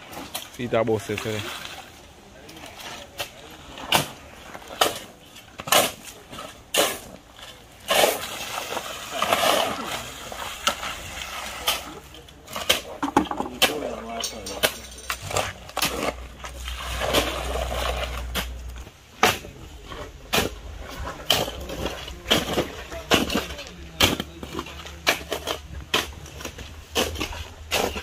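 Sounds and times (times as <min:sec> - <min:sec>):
shovels scraping wet concrete mix: 0:00.0 - 0:28.0
shovel blades knocking on stones: 0:13.0 - 0:15.9.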